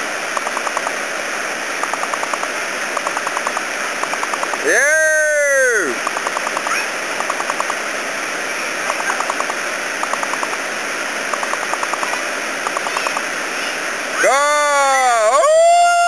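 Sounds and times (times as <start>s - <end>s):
waterfall pouring over rock: 0.0s - 16.0s
rapid clicking: 0.3s - 0.9s, 1.8s - 4.6s, 6.0s - 7.8s, 8.9s - 10.6s, 11.3s - 13.2s.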